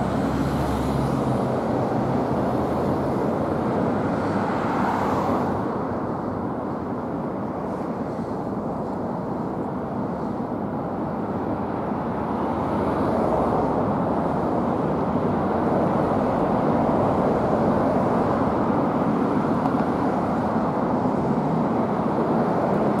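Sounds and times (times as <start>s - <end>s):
fire engine driving: 0.0s - 4.0s
road noise: 0.0s - 23.0s.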